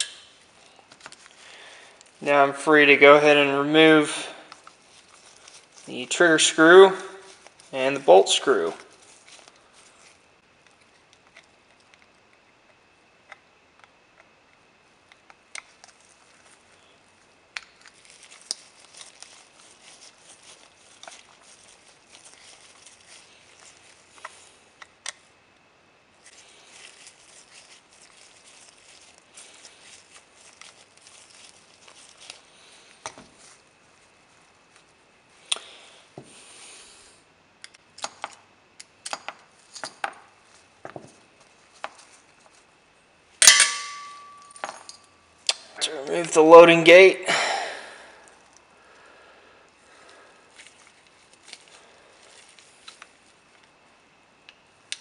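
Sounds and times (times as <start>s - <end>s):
small metal parts clicking and clinking: 43.4s - 45.1s.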